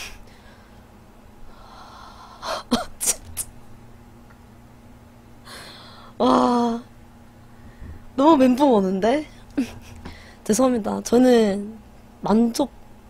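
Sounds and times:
woman gasping breaths: 0:05.4 - 0:06.2, 0:10.0 - 0:10.4.

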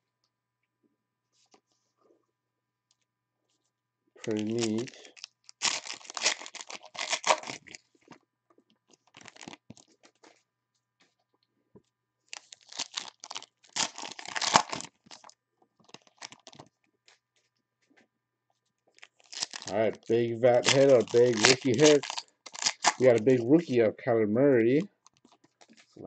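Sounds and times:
foil wrappers tearing and crinkling: 0:04.2 - 0:07.9, 0:08.9 - 0:10.1, 0:12.3 - 0:16.7, 0:19.0 - 0:23.5, 0:25.0 - 0:26.0.

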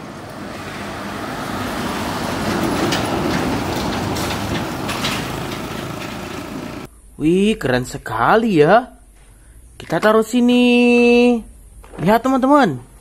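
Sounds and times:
truck driving past: 0:00.0 - 0:06.9.

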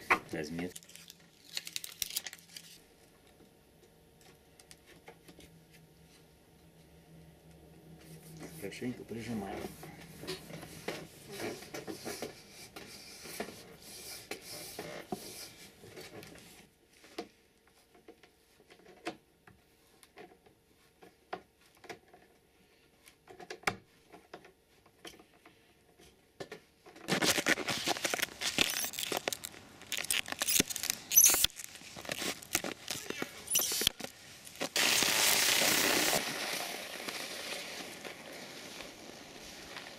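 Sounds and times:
rustling and scraping on ski binding: 0:26.9 - 0:39.9.

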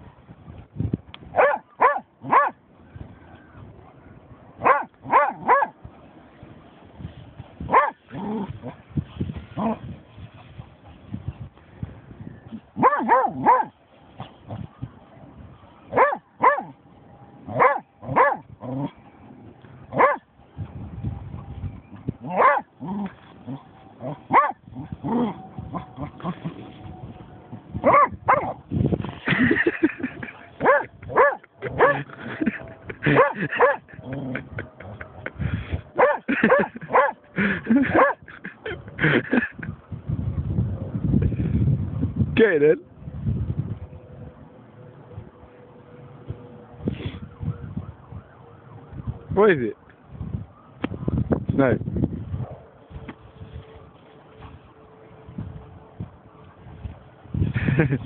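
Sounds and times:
dog barking: 0:01.4 - 0:02.6, 0:04.6 - 0:05.8, 0:07.7 - 0:08.0, 0:12.8 - 0:13.7, 0:15.9 - 0:16.8, 0:17.5 - 0:18.4, 0:19.9 - 0:20.2, 0:22.2 - 0:22.7, 0:24.0 - 0:24.6, 0:27.8 - 0:28.6, 0:30.6 - 0:32.1, 0:33.1 - 0:33.9, 0:36.0 - 0:37.2, 0:37.8 - 0:38.2.

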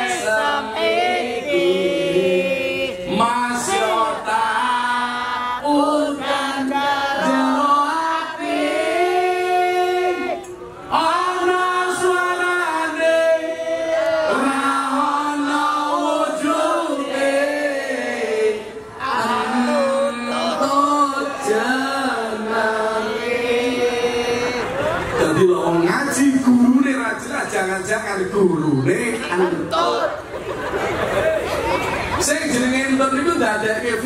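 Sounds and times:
voices singing in chanting style: 0:00.0 - 0:25.1.

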